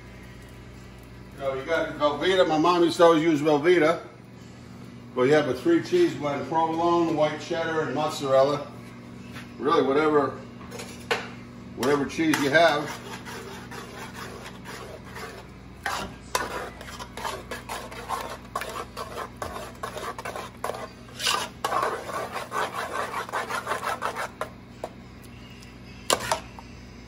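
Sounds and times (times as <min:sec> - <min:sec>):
metal spoon scraping a pot: 0:11.8 - 0:25.0, 0:26.0 - 0:26.6.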